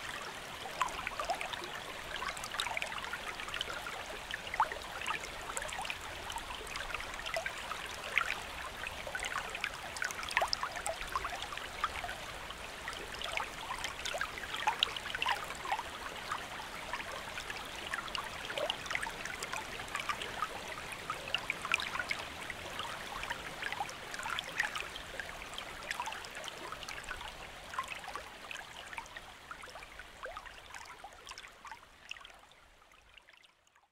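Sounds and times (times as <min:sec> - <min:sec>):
stream babbling: 0:00.0 - 0:32.3.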